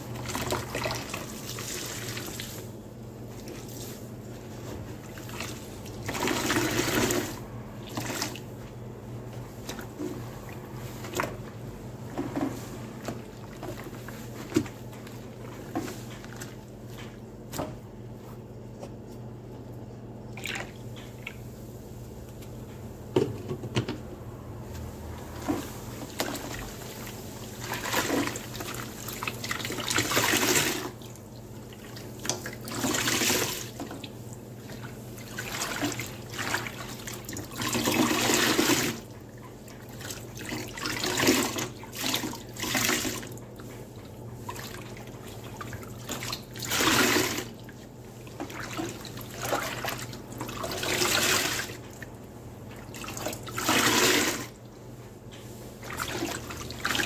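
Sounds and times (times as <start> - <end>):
soapy sponge squeezed: 0.1 - 8.6, 25.3 - 52.0.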